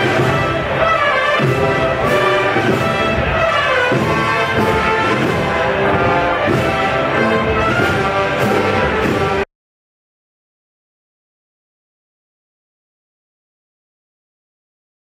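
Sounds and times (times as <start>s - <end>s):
brass band playing a march: 0.0s - 9.5s.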